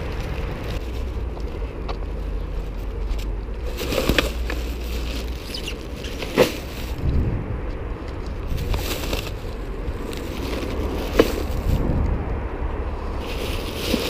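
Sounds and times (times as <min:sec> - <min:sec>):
plastic bags rustling: 0:00.0 - 0:07.0, 0:08.4 - 0:11.9, 0:13.1 - 0:14.0
steady low rumble: 0:00.0 - 0:14.0.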